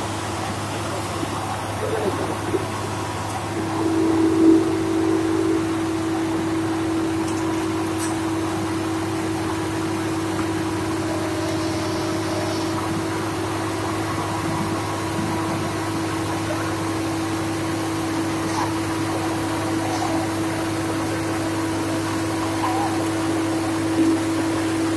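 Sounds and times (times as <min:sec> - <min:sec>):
drilling rig engine running: 0:00.0 - 0:24.9.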